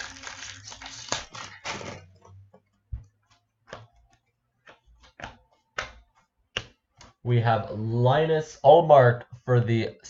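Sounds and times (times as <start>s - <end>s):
cards flicking and tapping: 3.0s - 7.2s.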